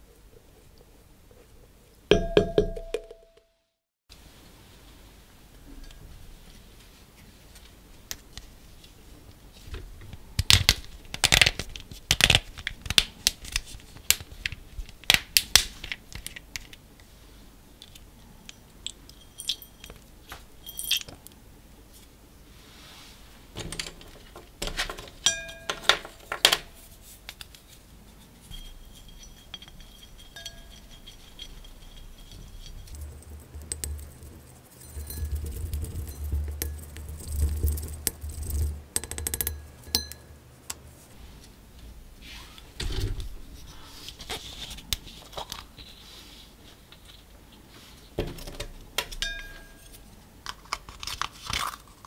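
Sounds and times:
clinks on glass bowl: 2.1s - 3.3s, 25.2s - 26.0s, 28.5s - 32.9s, 39.4s - 40.4s, 49.2s - 50.0s
wooden stick scraping glass bowl: 28.4s - 38.8s.

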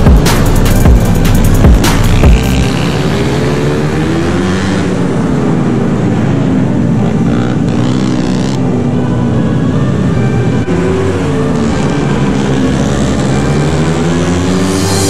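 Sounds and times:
electronic music: 0.0s - 3.4s, 12.8s - 15.0s
mini bike engines revving: 2.1s - 8.8s, 10.6s - 15.0s.

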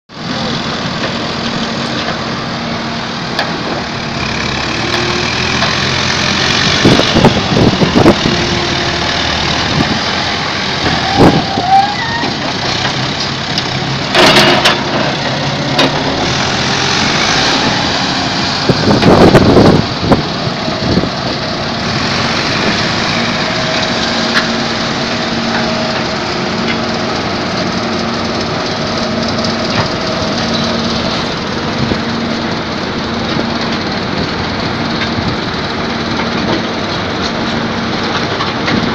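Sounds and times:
construction machinery engine hum: 0.1s - 38.9s
loud knocks and clattering: 12.2s - 17.0s.

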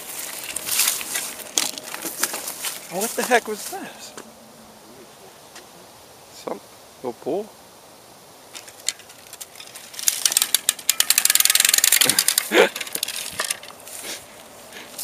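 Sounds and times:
bicycle freewheel ratchet ticking: 10.0s - 13.0s.

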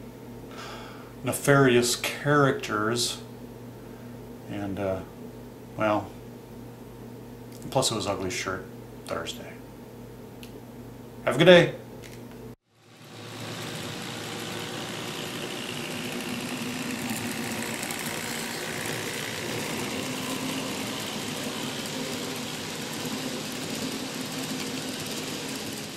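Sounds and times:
model train motor whir: 12.7s - 25.9s.

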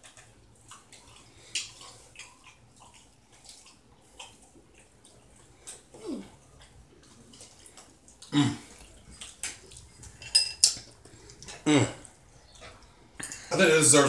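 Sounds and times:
chewing clicks and smacks: 0.0s - 13.3s
person humming: 6.0s - 6.3s, 8.3s - 8.7s, 11.6s - 12.0s.

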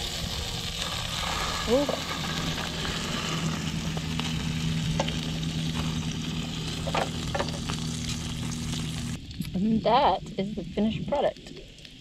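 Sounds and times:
meat sizzling on a grill: 0.0s - 9.2s
steady low hum: 0.0s - 12.0s
spatula scraping grill grate: 0.7s - 9.2s.

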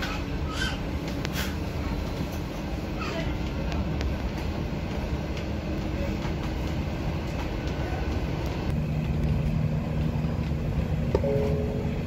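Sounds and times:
light rail car rolling rumble: 0.0s - 12.0s
low steady hum: 8.7s - 12.0s.

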